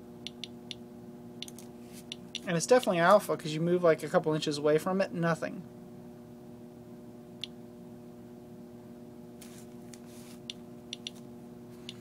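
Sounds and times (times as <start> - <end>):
steady low hum: 0.0 - 12.0
soft rustle: 9.4 - 10.4.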